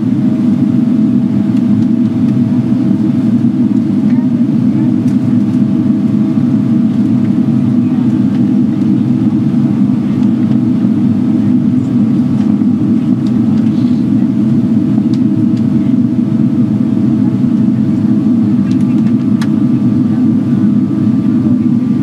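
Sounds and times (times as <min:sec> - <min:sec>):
low rumble of engines and air: 0:00.0 - 0:22.0.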